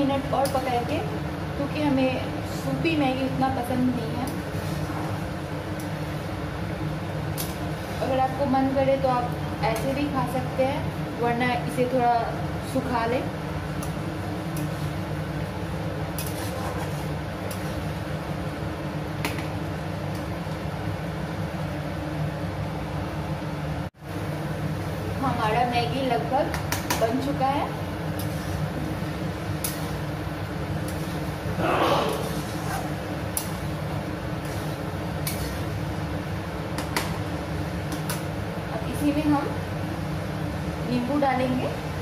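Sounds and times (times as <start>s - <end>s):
low hum and hiss: 0.0s - 42.0s
spatula scraping metal pan: 16.2s - 17.8s, 32.1s - 33.7s, 34.4s - 35.8s.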